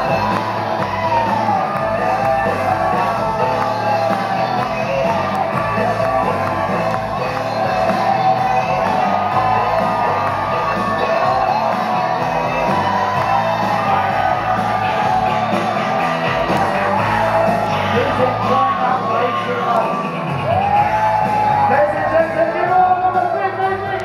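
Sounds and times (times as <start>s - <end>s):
crowd shouting and whooping: 0.0s - 24.0s
loud music: 0.0s - 24.0s.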